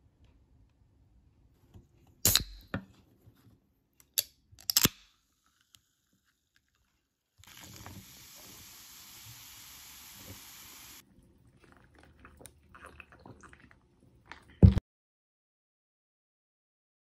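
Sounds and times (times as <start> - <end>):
can popping open hiss: 2.2 - 2.7, 7.4 - 11.0
soda fizzing: 7.4 - 11.0.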